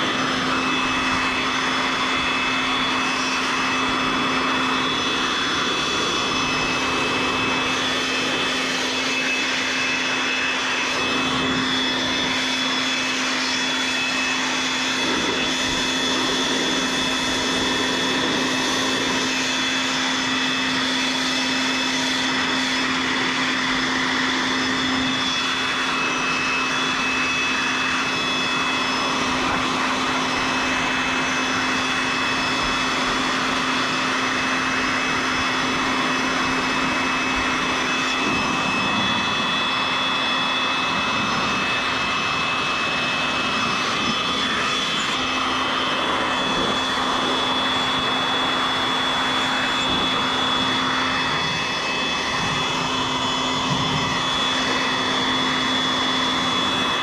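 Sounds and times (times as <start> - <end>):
high whines: 0.0 - 57.0
machine hum: 0.0 - 57.0.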